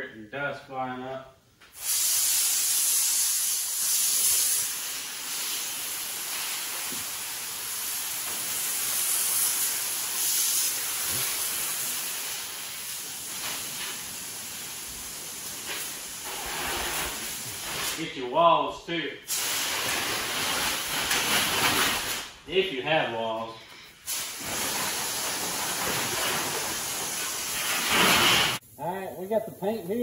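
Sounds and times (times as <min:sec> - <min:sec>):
hose spraying water on concrete: 0:01.8 - 0:18.0, 0:19.3 - 0:22.1, 0:24.1 - 0:28.6.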